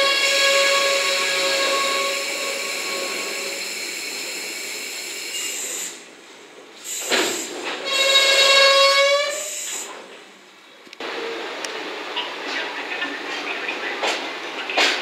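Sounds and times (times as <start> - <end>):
train wheels squealing: 0.0 - 6.0, 7.4 - 9.9.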